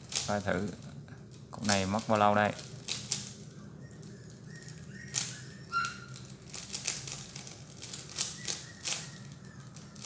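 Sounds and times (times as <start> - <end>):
puzzle cube clicking: 0.0 - 0.3, 2.6 - 3.4, 4.0 - 10.0.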